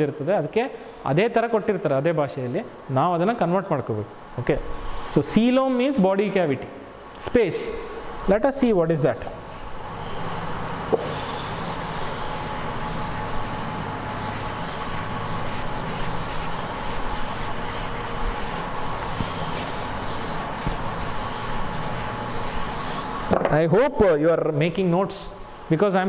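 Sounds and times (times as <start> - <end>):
duster rubbing on chalkboard: 10.9 - 23.3.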